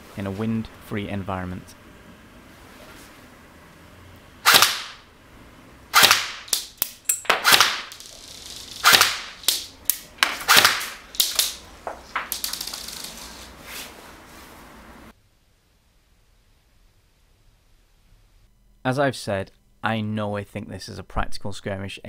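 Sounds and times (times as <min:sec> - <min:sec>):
airsoft gun shots: 0:04.4 - 0:05.0, 0:05.9 - 0:06.7, 0:07.3 - 0:08.0, 0:08.8 - 0:09.7, 0:10.3 - 0:11.6.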